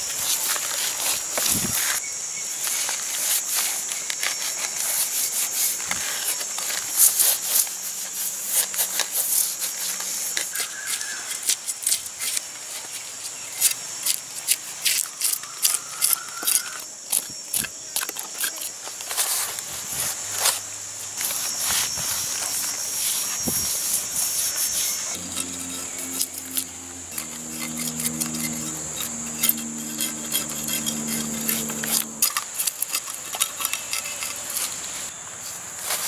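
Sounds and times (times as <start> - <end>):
high-pitched hiss: 19.2 - 27.6
knife scraping fish scales: 22.8 - 35.1.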